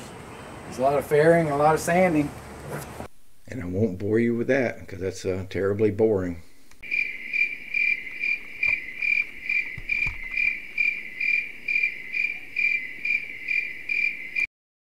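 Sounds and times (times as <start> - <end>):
insect chirping: 6.8 - 14.5.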